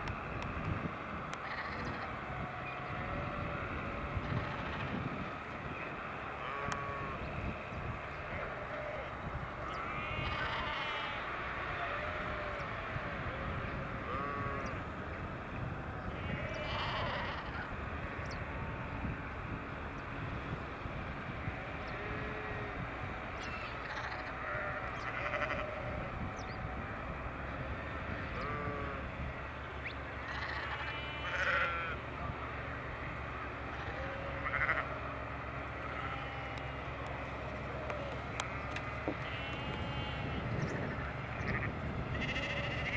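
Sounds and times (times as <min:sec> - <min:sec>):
low engine rumble: 0:00.0 - 0:42.9
sheep bleating: 0:01.4 - 0:05.0, 0:06.3 - 0:07.3, 0:08.2 - 0:14.8, 0:16.0 - 0:18.9, 0:21.8 - 0:22.8, 0:23.4 - 0:26.1, 0:27.8 - 0:29.1, 0:30.2 - 0:42.9.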